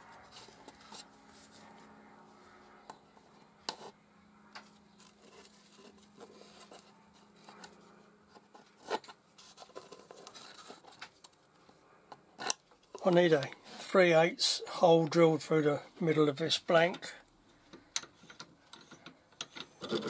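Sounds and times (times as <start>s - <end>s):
light taps and scratchy rubbing: 0.1s - 1.9s.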